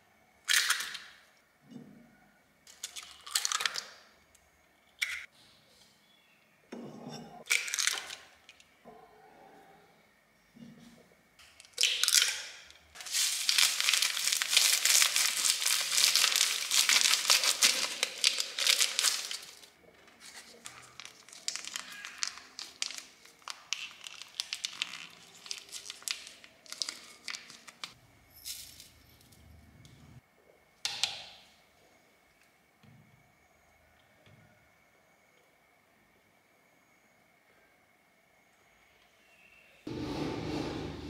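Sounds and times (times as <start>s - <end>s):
plastic sachet crinkling: 13.0s - 28.0s.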